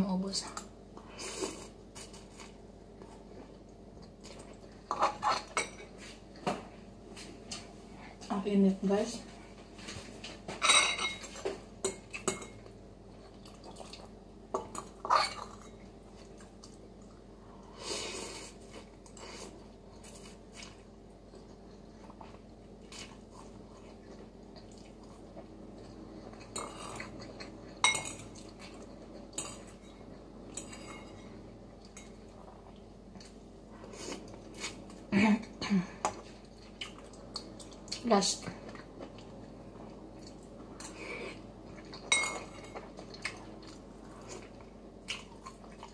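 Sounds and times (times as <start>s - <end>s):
cutlery clinking on ceramic bowl: 10.6s - 12.6s, 27.8s - 28.3s, 42.0s - 42.8s.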